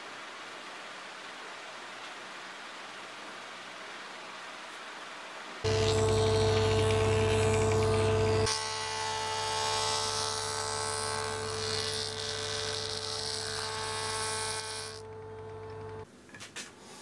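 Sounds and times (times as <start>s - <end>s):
jointer motor hum: 5.7s - 16.0s.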